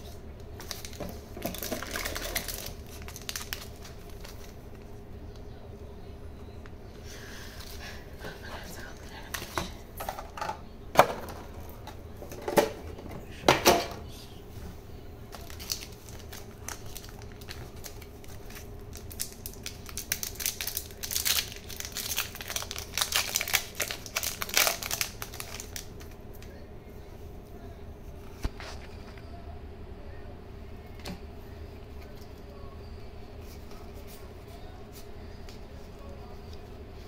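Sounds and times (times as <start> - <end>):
foil wrapper crinkling and tearing: 0.6 - 4.9, 15.3 - 26.2.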